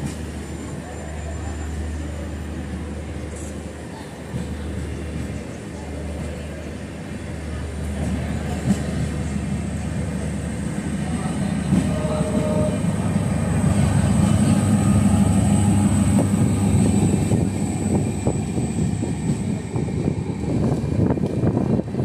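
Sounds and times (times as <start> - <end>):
train rail rumble: 0.0 - 22.0.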